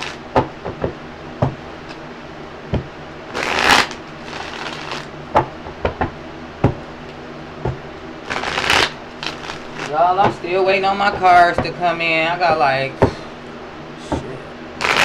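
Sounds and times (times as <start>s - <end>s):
cards being shuffled: 3.3s - 5.1s, 8.3s - 10.4s, 14.8s - 15.0s.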